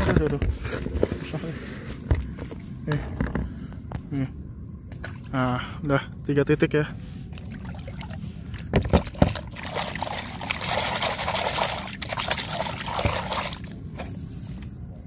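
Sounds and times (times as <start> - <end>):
hand sloshing groundbait in water: 8.8 - 13.7.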